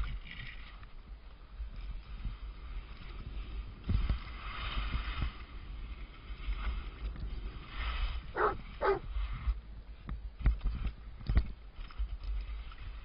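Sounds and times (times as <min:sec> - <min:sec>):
wind on microphone: 0:01.5 - 0:13.0
skis scraping over snow: 0:01.7 - 0:09.6.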